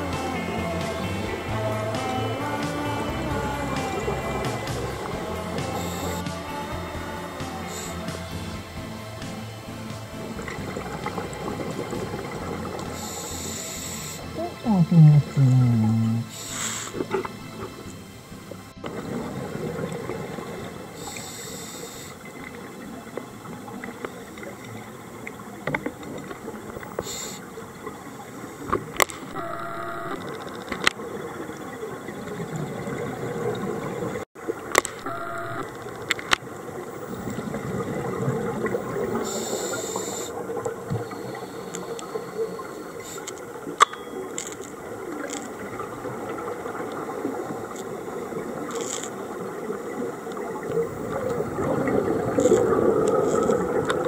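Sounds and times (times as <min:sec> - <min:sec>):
regulator inhalation hiss: 0:00.6 - 0:19.6, 0:20.8 - 0:22.8, 0:26.8 - 0:27.7, 0:39.0 - 0:43.6
scuba regulator exhaled bubbles: 0:10.2 - 0:17.9, 0:35.0 - 0:43.7, 0:44.8 - 0:54.0.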